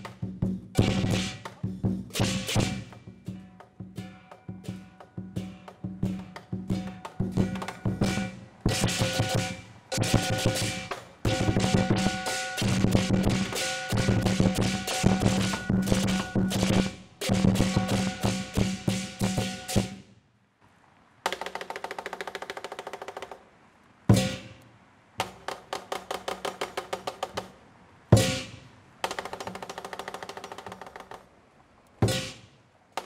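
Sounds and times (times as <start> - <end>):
drum strikes: 0.0 - 20.1, 24.1 - 24.5, 28.2 - 31.0, 32.0 - 32.5
cymbal crash: 8.0 - 20.0.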